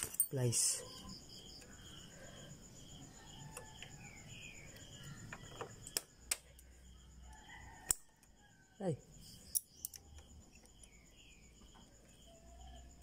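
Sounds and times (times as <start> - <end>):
crickets chirping: 0.0 - 13.0
sharp metal clicks of pliers: 7.9 - 8.1, 9.5 - 10.7.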